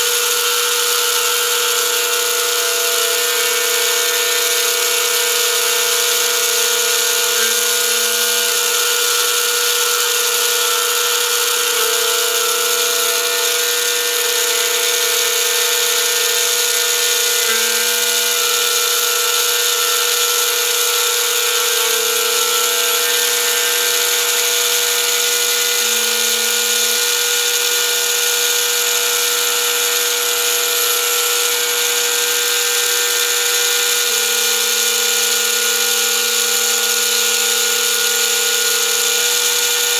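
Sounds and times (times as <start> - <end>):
lathe motor whine and hiss: 0.0 - 39.9.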